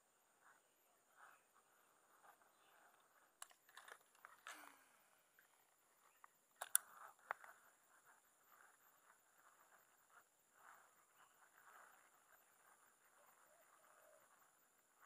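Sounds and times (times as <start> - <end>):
fishing reel clicks and rustles: 3.2 - 14.3.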